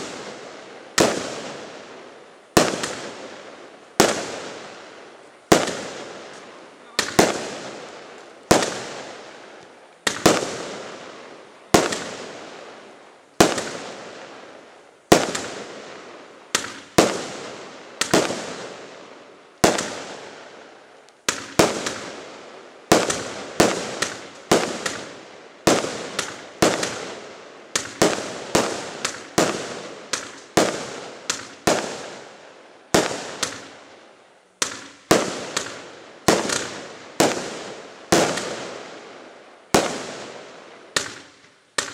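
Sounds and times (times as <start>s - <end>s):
fireworks bangs echoing: 0.0s - 41.9s.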